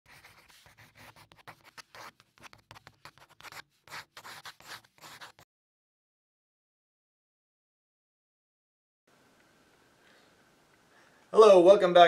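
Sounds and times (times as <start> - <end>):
pen scratching handwriting: 0.1 - 5.4.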